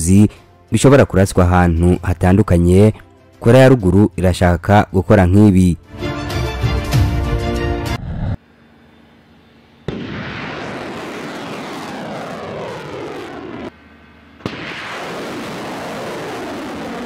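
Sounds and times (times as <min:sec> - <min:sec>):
rocket motor roar: 0:07.9 - 0:17.0.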